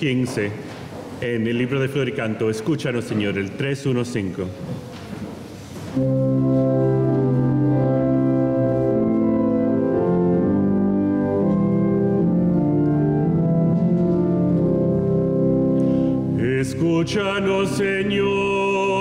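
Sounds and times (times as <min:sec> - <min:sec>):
organ playing sustained chords: 0:05.9 - 0:19.0.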